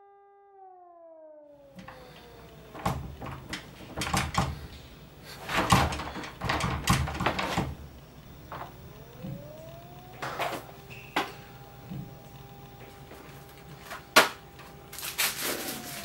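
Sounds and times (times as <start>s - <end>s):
door latch rattling and clicking: 1.8s - 4.8s, 5.4s - 9.4s.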